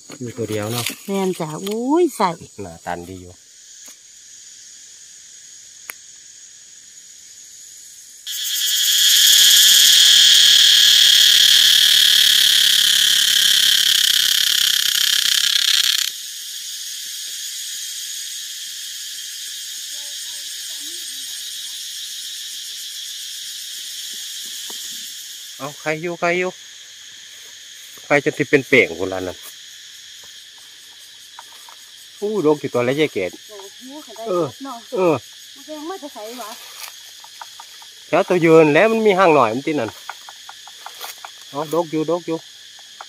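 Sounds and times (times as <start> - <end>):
faint insect chorus: 0.0 - 43.0
high-pitched insect buzz: 0.0 - 43.0.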